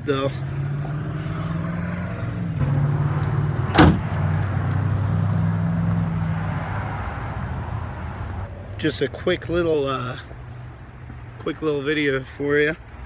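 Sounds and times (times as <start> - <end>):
tailgate slamming shut: 3.7 - 4.2.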